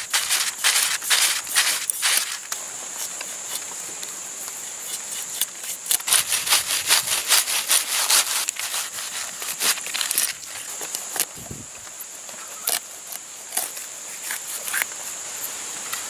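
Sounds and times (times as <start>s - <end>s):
knife scraping fish: 0.0s - 3.6s, 4.8s - 11.3s, 12.5s - 14.9s.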